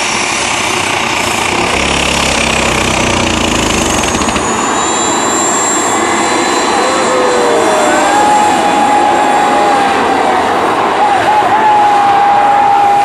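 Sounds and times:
tractor engine running flat out: 0.0 - 10.4
high engine whine: 0.0 - 13.0.

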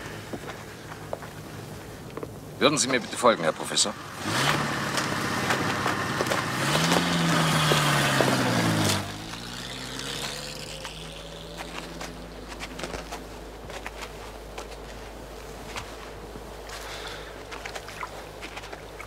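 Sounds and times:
low steady hum: 0.0 - 19.0
vehicle engine running loudly: 3.4 - 15.0.

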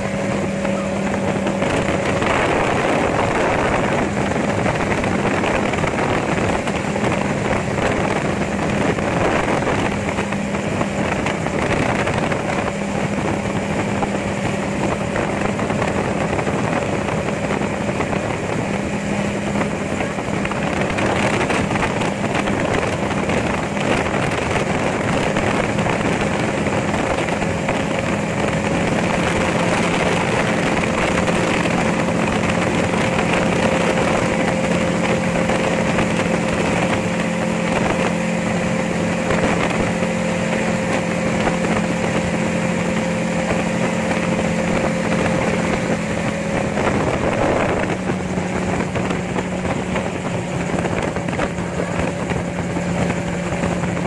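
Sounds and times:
aircraft engine and propeller drone: 0.0 - 54.0
wind rushing: 0.0 - 54.0.

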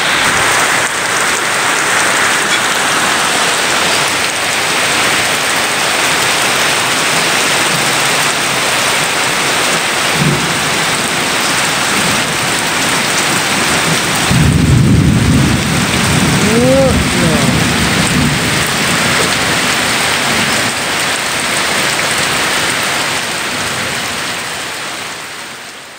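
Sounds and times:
heavy rain pouring on concrete: 0.0 - 25.9
low rumble of thunder: 13.6 - 16.4, 17.0 - 20.7.

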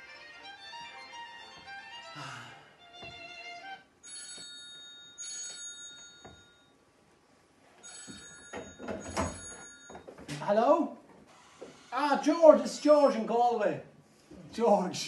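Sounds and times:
fiddle-like tune: 0.0 - 4.0
telephone ringing: 4.0 - 6.8, 7.8 - 10.3.

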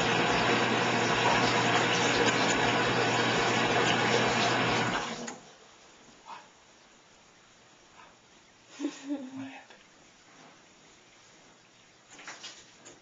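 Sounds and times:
water running into bathtub: 0.0 - 5.5.

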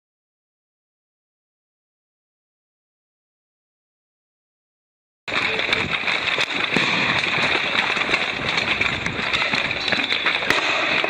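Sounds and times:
dense steady din: 5.3 - 11.0
firecrackers popping: 5.3 - 11.0.

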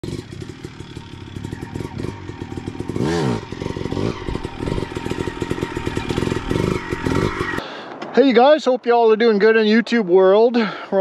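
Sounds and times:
motorcycle engine idling: 0.0 - 7.6.

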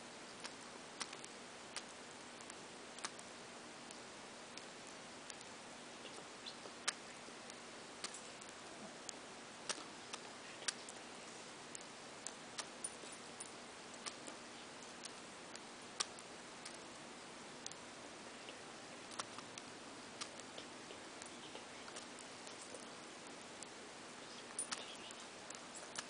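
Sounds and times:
faint steady hiss: 0.0 - 26.0
bird beak cracking seeds: 9.7 - 11.0, 20.2 - 23.7.

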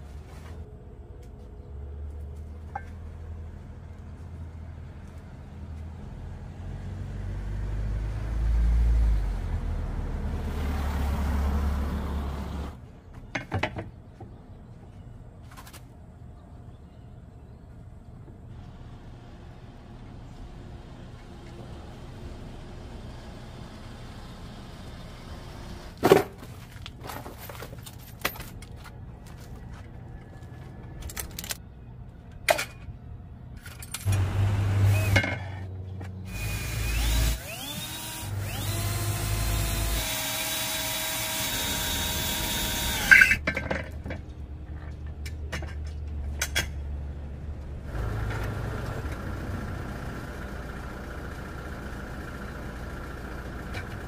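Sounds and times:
tools clanking and knocking: 26.0 - 29.0, 32.4 - 33.0, 43.0 - 46.8
power drill running: 34.1 - 35.2, 36.3 - 43.3.

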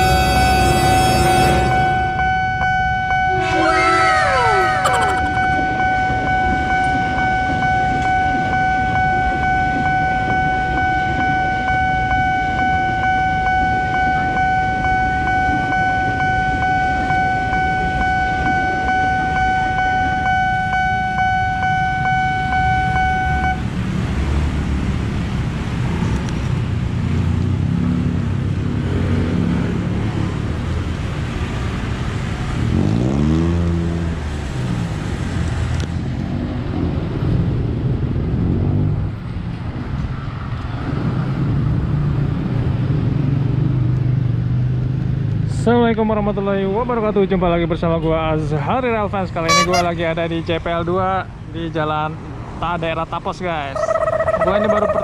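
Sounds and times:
electric train rumbling past: 0.0 - 9.9
level crossing alarm tone: 0.0 - 23.6, 49.5 - 49.9
motorcycle and minibus engines: 0.0 - 55.0.

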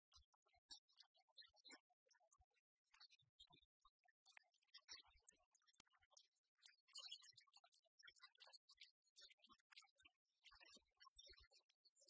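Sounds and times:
faint ticks and crackle: 2.9 - 12.0.

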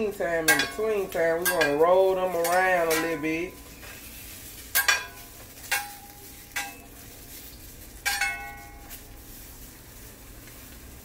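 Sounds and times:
faint sizzle: 0.0 - 11.0
metal spatula knocking on skillet: 0.4 - 3.5, 4.7 - 6.8.

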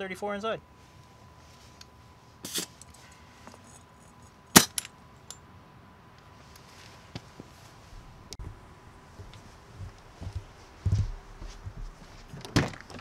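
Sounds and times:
air hiss from tire valve: 2.4 - 2.8.

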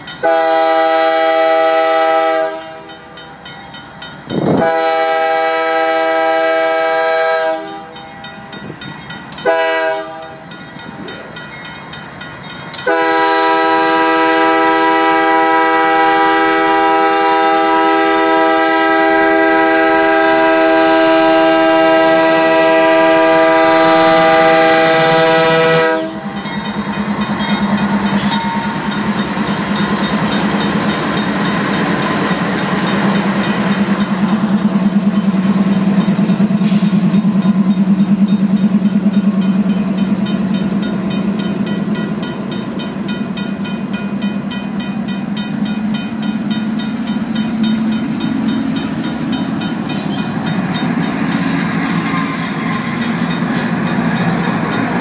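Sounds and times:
diesel locomotive engine rumbling: 0.0 - 55.0
train air horn blasts: 0.2 - 3.0, 4.4 - 8.0, 9.4 - 10.4, 12.8 - 26.4
crossing bell ringing: 2.4 - 4.8, 7.5 - 15.2, 25.8 - 55.0.

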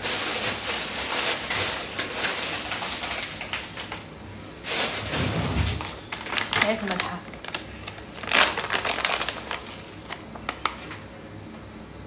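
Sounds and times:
rummaging in kitchen cupboard: 0.0 - 7.2
plastic packet rustling: 0.0 - 12.0.

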